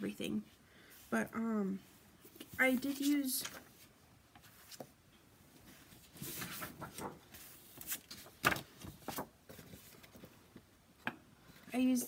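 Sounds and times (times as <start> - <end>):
plastic sleeve rustling: 5.7 - 10.4.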